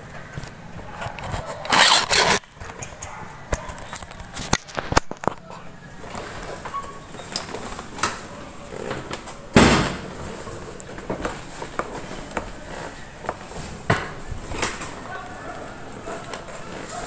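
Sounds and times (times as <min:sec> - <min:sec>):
fabric rubbing on microphone: 0:00.8 - 0:02.4
loud thump: 0:09.6 - 0:10.1.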